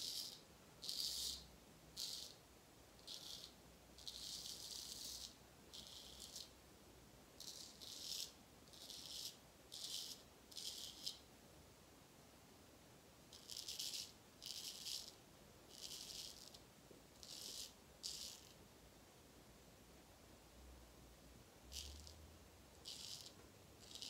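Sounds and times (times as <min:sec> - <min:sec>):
razor scraping beard stubble: 0:00.0 - 0:01.4, 0:03.0 - 0:06.5, 0:07.4 - 0:11.2, 0:13.4 - 0:16.6, 0:17.2 - 0:18.5, 0:22.9 - 0:24.0.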